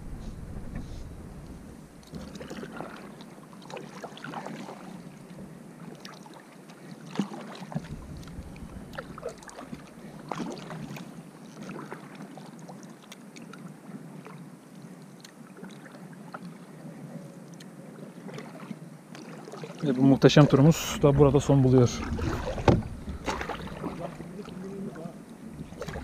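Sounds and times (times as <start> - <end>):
paddle splashing in water: 2.0 - 14.4, 18.0 - 26.0.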